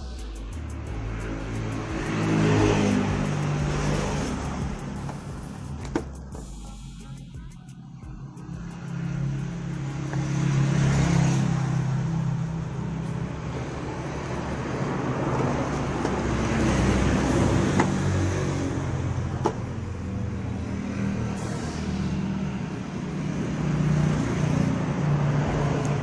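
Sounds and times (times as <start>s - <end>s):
vehicle engine running: 0.0s - 20.7s
road traffic noise: 0.0s - 26.0s.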